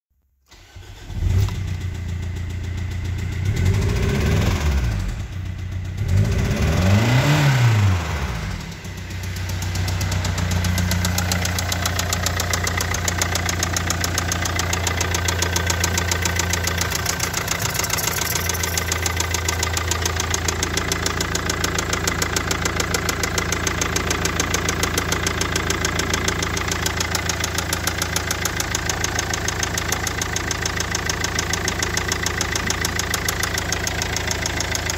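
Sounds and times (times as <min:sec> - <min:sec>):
diesel engine starting and idling: 0:00.5 - 0:34.9
engine revving: 0:03.3 - 0:28.8.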